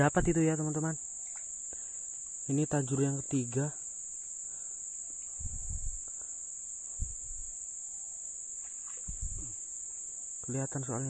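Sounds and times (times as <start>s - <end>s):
short low thumps: 0.0s - 0.4s, 5.4s - 6.0s, 7.0s - 7.5s, 9.1s - 9.6s
insects chirring: 0.0s - 11.0s.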